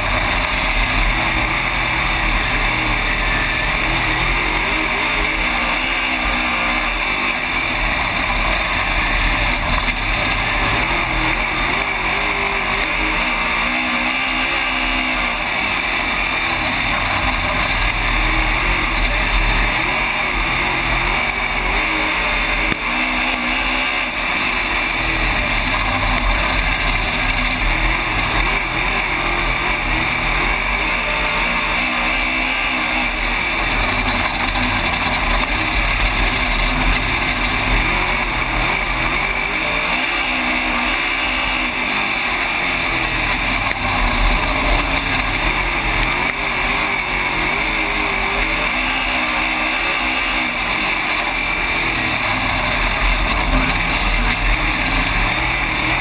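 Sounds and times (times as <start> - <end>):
race car engine revving: 0.0 - 56.0
steady rushing noise: 0.0 - 56.0.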